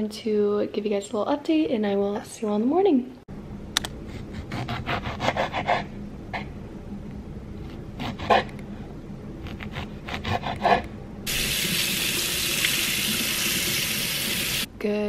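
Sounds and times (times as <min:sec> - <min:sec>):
tap water running into strainer: 0:11.3 - 0:14.7.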